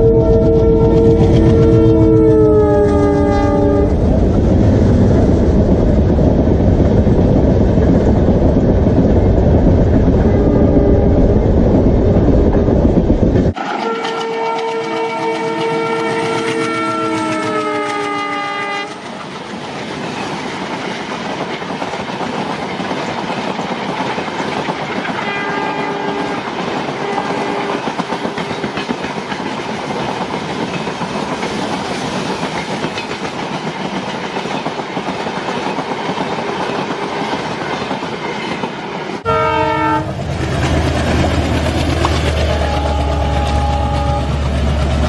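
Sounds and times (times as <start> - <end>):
train horn: 0.0 - 4.0, 10.3 - 11.4, 13.6 - 19.1, 25.2 - 27.9, 39.2 - 40.3, 42.1 - 44.9
train rumbling on rails: 0.0 - 45.0.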